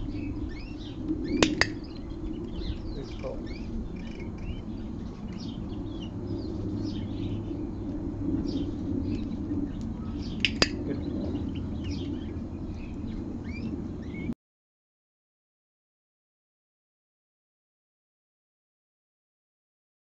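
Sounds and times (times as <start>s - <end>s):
low background hum: 0.0s - 14.4s
small birds chirping: 0.0s - 14.4s
sharp double click: 10.4s - 10.8s.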